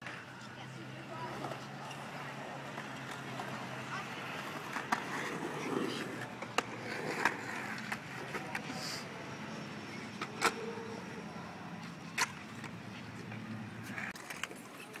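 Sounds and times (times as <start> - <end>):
skateboard wheels rolling on concrete: 0.0 - 15.0
skateboard clacks: 1.3 - 8.7.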